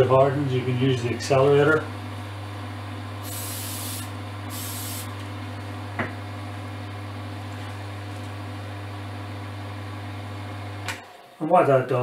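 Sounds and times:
aerosol can hissing: 0:03.2 - 0:05.1.

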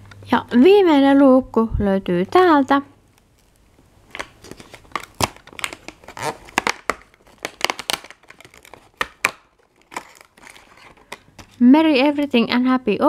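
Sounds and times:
cardboard tearing and crackling: 0:03.4 - 0:11.6.

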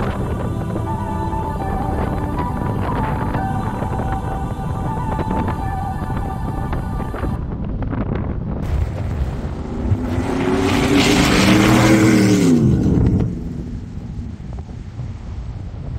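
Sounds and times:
wind noise on microphone: 0:00.0 - 0:15.9
truck engine revving past: 0:08.6 - 0:14.2.

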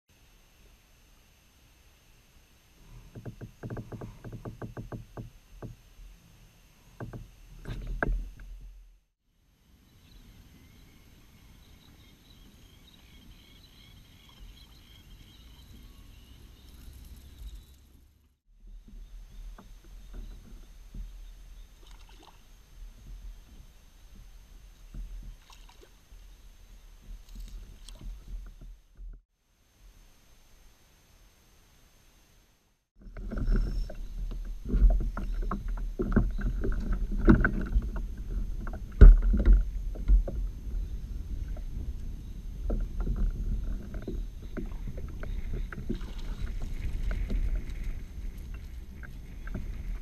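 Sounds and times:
water lapping against hull: 0:18.6 - 0:29.2, 0:33.0 - 0:50.0.

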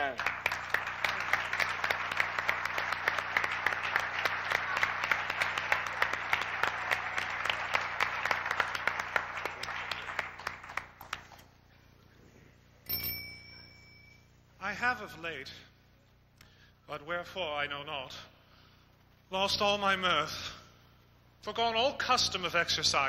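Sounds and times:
audience applauding: 0:00.0 - 0:11.5
short bright ringing tone: 0:12.8 - 0:14.4.

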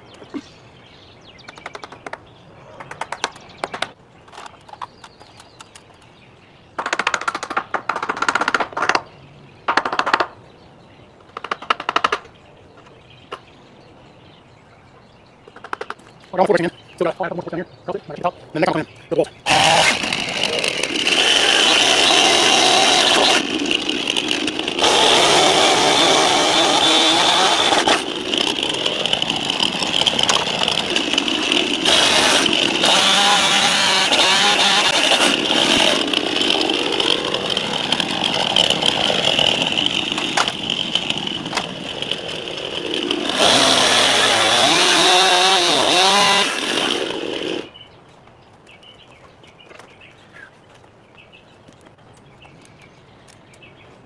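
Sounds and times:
chainsaw cutting wood: 0:19.4 - 0:47.8.

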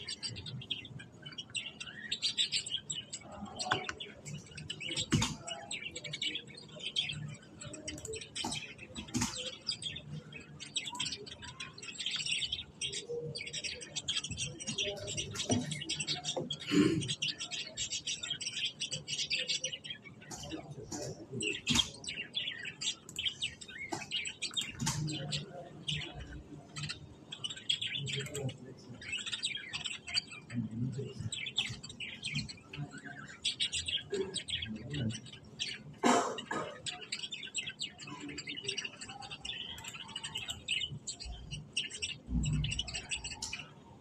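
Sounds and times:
budgerigars chattering: 0:00.0 - 0:44.0.

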